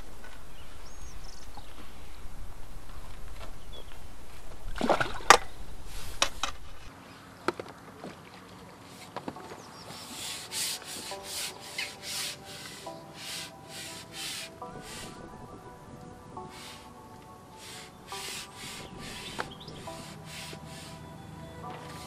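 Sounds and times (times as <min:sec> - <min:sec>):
wind rumble on microphone: 0:00.0 - 0:06.9, 0:14.6 - 0:20.1.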